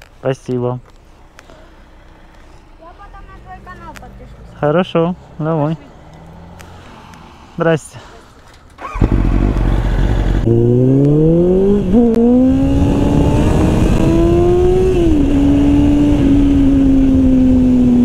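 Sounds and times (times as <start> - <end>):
motorcycle engine revving: 8.8 - 18.0.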